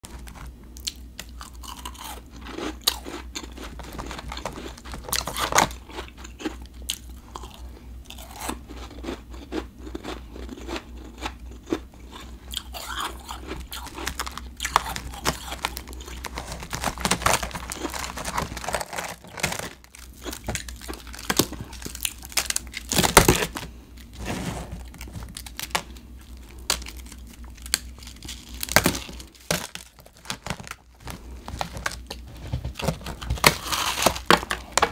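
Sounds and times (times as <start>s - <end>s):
ice crunching as it is chewed: 0.0s - 34.9s
steady low hum: 0.0s - 34.9s.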